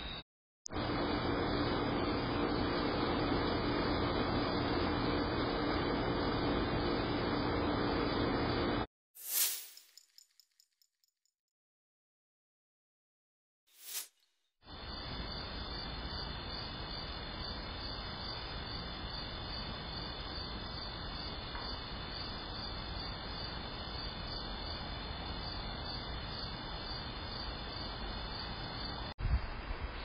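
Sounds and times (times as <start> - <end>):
crickets chirping: 14.7 - 29.1
constant microphone hiss: 14.7 - 30.0.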